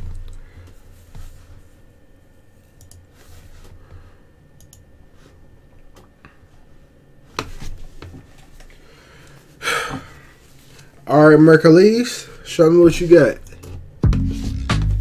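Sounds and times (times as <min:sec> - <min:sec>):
computer mouse and keyboard clicks: 0:02.8 - 0:03.1.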